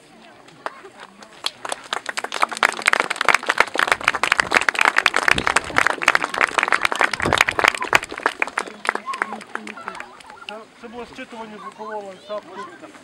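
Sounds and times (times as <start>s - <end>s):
audience applauding: 0.5s - 10.6s.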